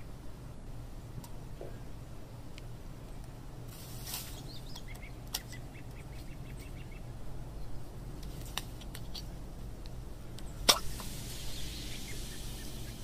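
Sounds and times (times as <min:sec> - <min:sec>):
low outdoor rumble: 0:00.0 - 0:13.0
small bird chirping: 0:04.2 - 0:07.8, 0:11.3 - 0:13.0.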